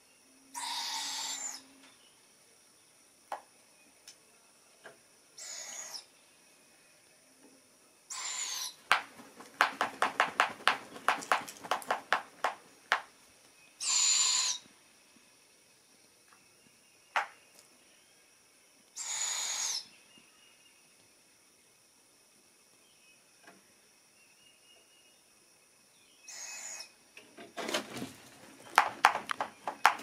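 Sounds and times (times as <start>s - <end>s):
quick run of sharp clicks: 8.9s - 13.1s, 28.7s - 30.0s
owlets giving raspy begging screeches: 13.8s - 14.7s, 19.0s - 19.8s.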